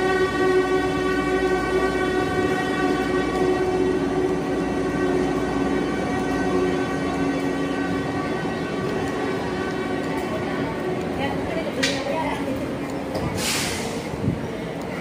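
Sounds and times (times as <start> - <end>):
long steady tone: 0.0 - 10.0
train wheels rumbling: 0.0 - 15.0.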